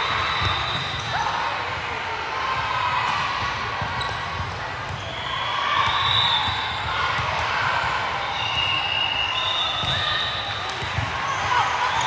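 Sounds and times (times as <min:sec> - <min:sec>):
shoe squeals: 0:00.0 - 0:01.6, 0:04.9 - 0:07.0, 0:08.2 - 0:12.0.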